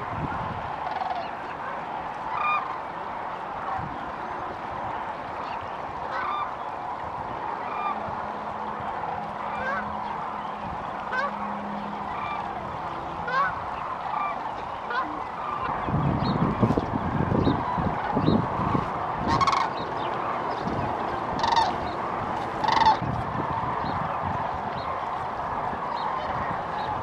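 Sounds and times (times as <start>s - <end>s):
flock of cranes calling: 0.0s - 27.0s
low rumbling noise: 0.0s - 27.0s.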